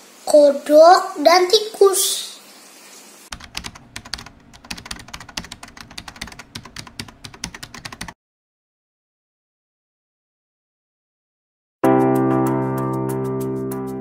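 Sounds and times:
keyboard typing: 3.3s - 8.2s.

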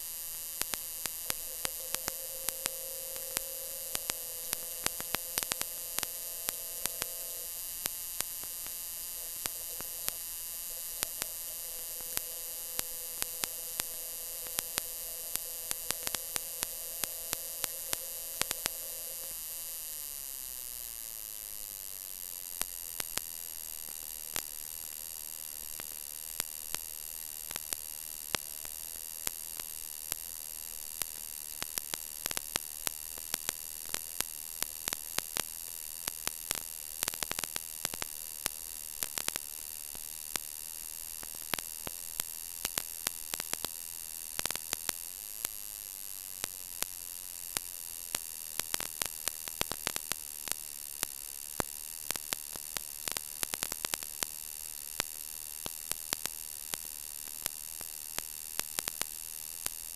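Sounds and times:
thin high whine: 0.0s - 22.0s
electrical hum and hiss: 0.0s - 59.9s
sharp crackling clicks: 0.6s - 19.6s.

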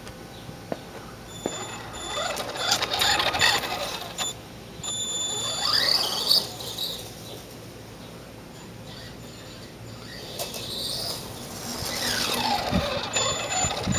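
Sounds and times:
toy truck electric motor whining: 1.4s - 7.2s, 8.9s - 13.9s.

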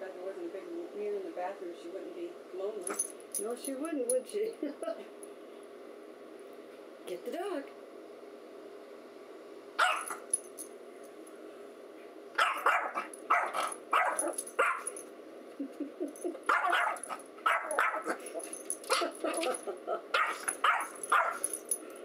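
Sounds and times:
small dog barking: 9.8s - 10.3s, 12.4s - 14.9s, 16.5s - 19.1s, 20.2s - 21.4s.

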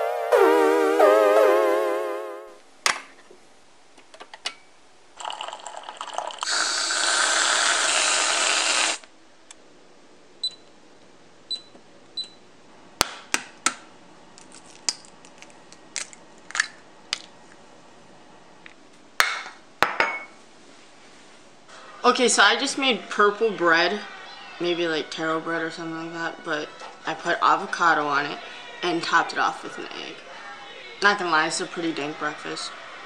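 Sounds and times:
coffee machine filling a mug: 5.2s - 9.0s.

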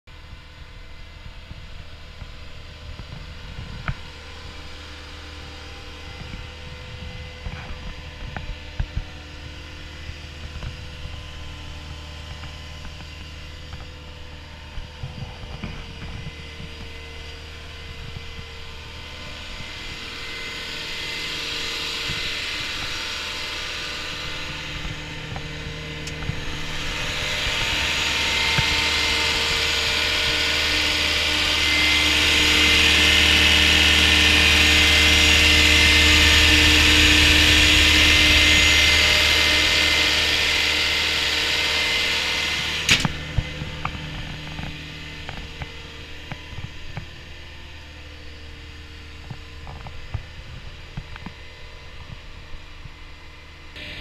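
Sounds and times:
hissing whir: 3.7s - 52.8s
diesel engine idling: 9.6s - 48.9s.

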